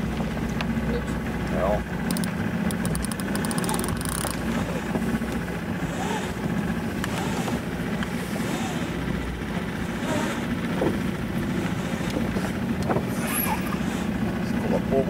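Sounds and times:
boat motor running: 0.0 - 15.0
winch clicking: 1.9 - 14.2.

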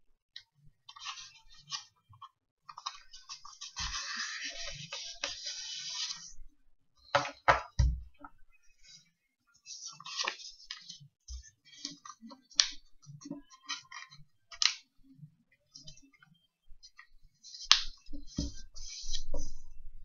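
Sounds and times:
paper rustling and crinkling: 0.9 - 1.9, 2.7 - 6.3, 9.7 - 12.3.

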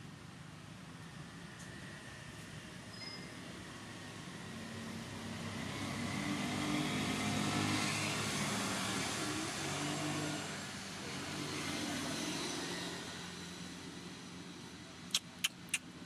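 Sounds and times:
vehicle engine passing by: 4.4 - 14.6.

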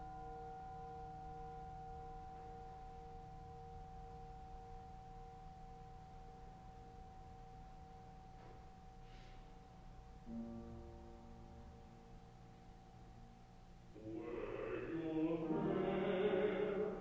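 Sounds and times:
church organ chords: 13.9 - 17.0.

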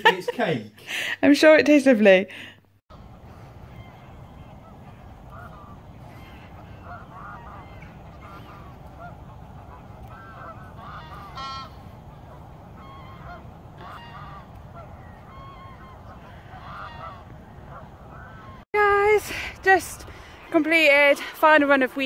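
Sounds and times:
steady low rumble: 2.9 - 18.6
geese honking: 2.9 - 22.0.

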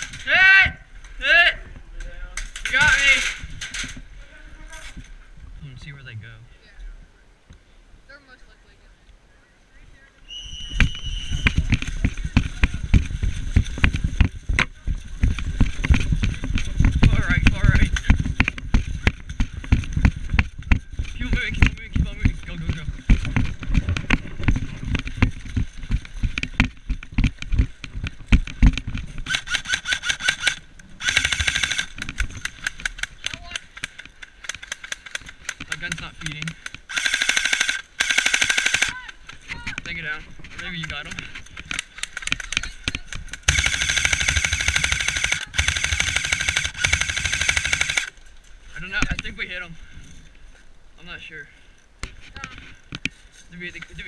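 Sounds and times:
gear knocking and rattling: 11.5 - 38.8, 40.5 - 48.1
airsoft gunfire: 29.3 - 32.0, 36.9 - 39.0, 43.4 - 48.1.

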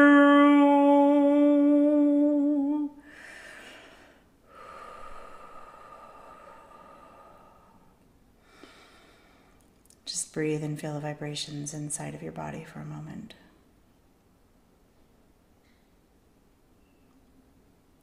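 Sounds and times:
woman singing a held tone: 0.0 - 3.1
person breathing: 3.0 - 9.6.

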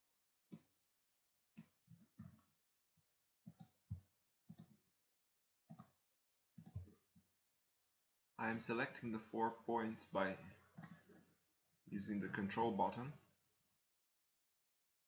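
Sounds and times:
computer mouse clicks: 3.4 - 3.8, 4.5 - 4.8, 5.7 - 6.0, 6.6 - 7.0, 10.8 - 11.2.

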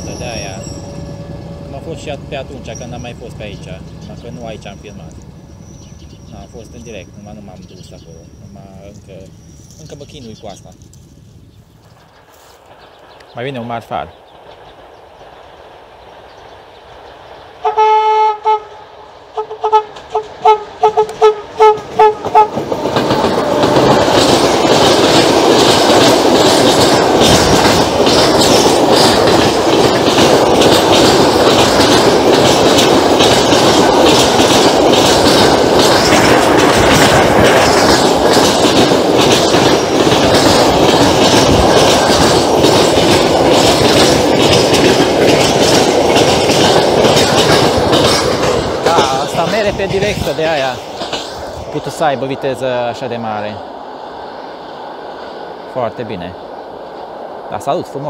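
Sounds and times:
freight train passing: 0.0 - 58.0
train horn blasts and toots: 17.6 - 22.6
wheels clacking over rail joints: 18.9 - 58.0.

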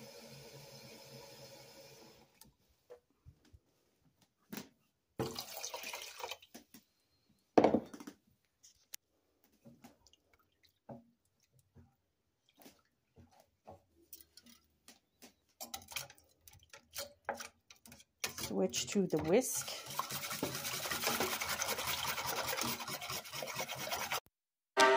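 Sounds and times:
wooden spoon scraping a pot: 13.1 - 24.3.

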